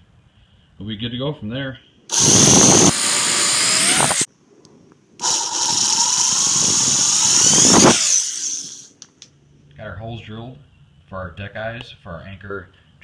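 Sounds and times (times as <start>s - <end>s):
cordless drill boring plastic: 2.1s - 4.3s, 5.2s - 9.0s.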